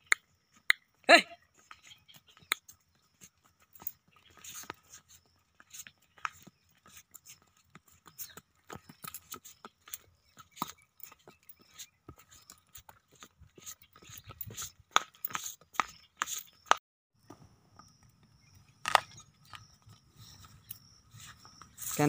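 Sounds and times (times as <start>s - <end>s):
hooves clopping on bricks: 1.7s - 16.8s.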